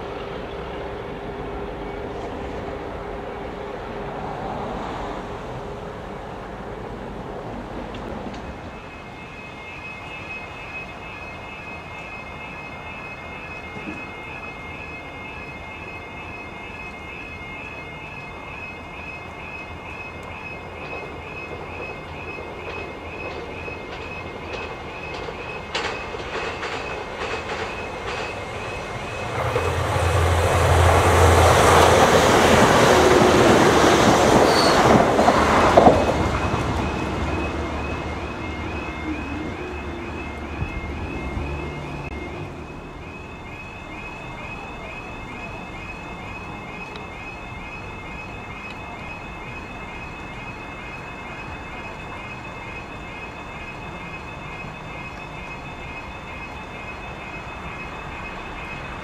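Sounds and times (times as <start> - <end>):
train engine rumble: 0.0 - 59.0
wheels on rails: 5.6 - 59.0
electronic alarm warbling: 8.5 - 59.0.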